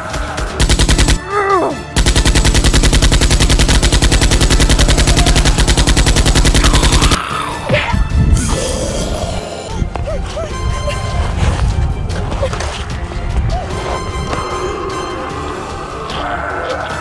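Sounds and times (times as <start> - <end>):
automatic gunfire bursts: 0.6 - 1.3, 2.0 - 7.2.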